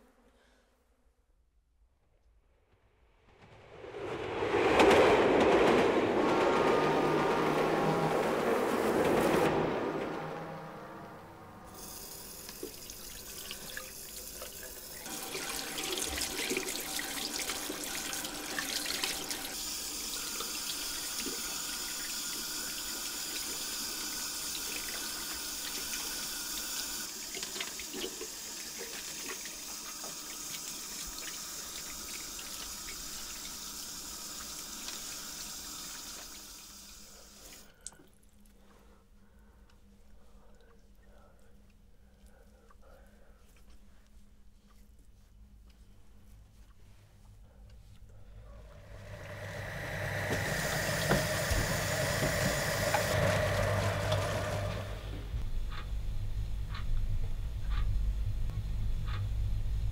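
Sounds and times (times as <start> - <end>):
water running from a tap: 11.8 - 37.7, 48.9 - 55.0.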